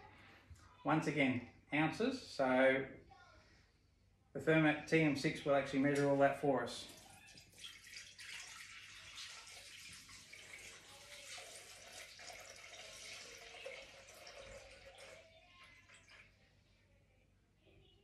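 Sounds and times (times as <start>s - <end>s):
water trickling into a bowl: 6.9s - 16.4s.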